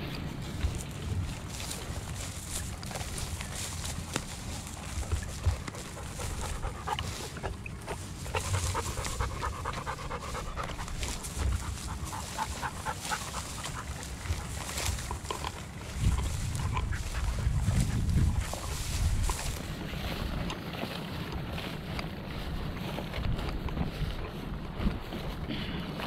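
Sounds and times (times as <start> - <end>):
movement through dry grass: 0.0 - 26.0
dog panting: 2.8 - 20.0.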